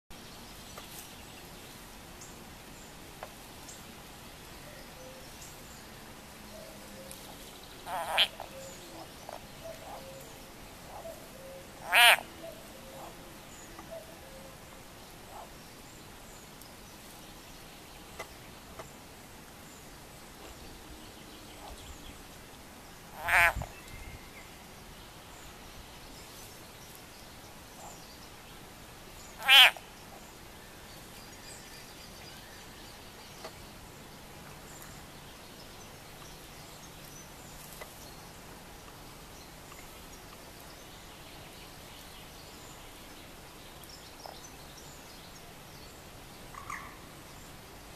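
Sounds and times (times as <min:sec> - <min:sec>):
frog screaming: 0:11.8 - 0:12.2, 0:23.2 - 0:23.6, 0:29.4 - 0:29.8.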